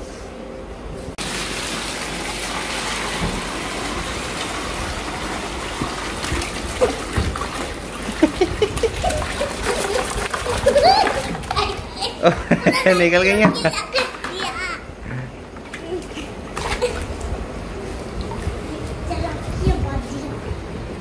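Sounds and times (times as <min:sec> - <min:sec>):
water pouring into plastic tub: 0:01.2 - 0:11.8
splashing: 0:01.2 - 0:14.6, 0:15.8 - 0:17.3.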